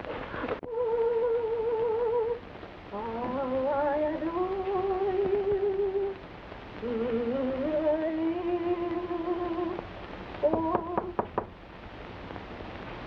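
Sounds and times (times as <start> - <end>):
woman humming: 0.6 - 6.1, 6.8 - 9.8, 10.4 - 11.3.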